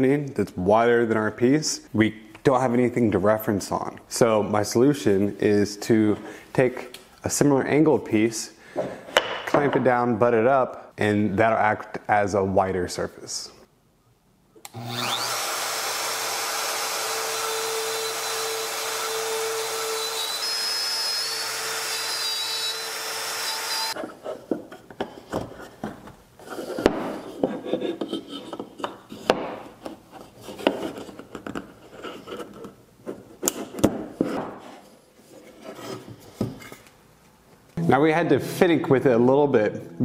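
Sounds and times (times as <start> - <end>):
router running: 14.6 - 24.0.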